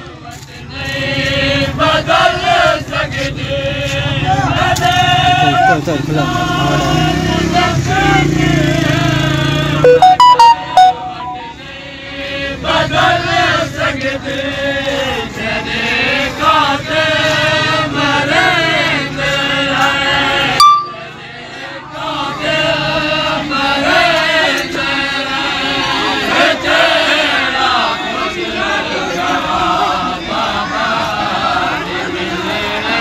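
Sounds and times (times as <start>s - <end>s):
short tone: 9.8s - 11.8s, 20.6s - 21.2s.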